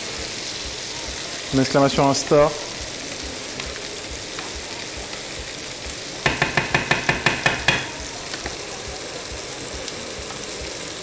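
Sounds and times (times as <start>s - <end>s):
food sizzling in a frying pan: 0.0s - 11.0s
spatula knocking against pan: 6.2s - 8.1s.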